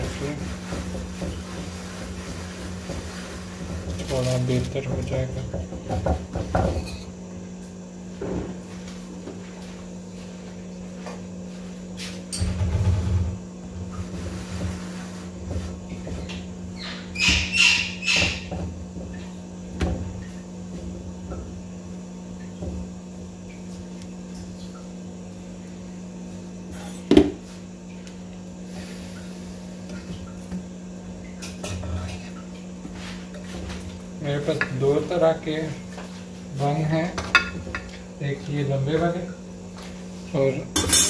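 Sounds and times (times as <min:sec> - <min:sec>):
bread buns turned on pan: 0:00.0 - 0:05.4, 0:40.7 - 0:41.0
steady low hum: 0:00.0 - 0:41.0.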